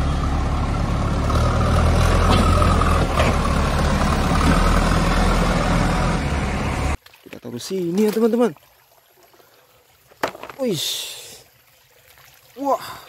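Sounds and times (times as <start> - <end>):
diesel engine rumbling: 0.0 - 7.0.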